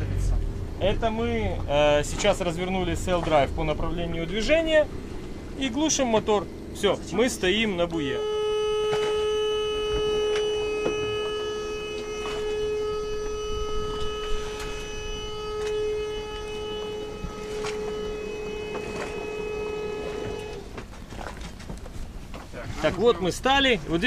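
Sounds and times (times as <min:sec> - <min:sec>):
alarm buzzer continuous tone: 0:06.8 - 0:20.7.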